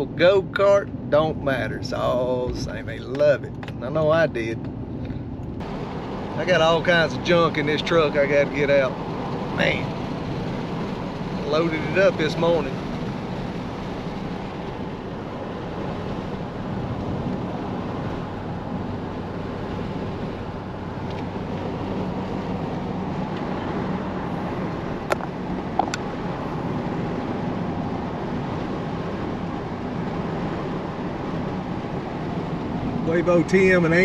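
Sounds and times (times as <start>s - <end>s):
truck engine and road noise: 0.0s - 34.0s.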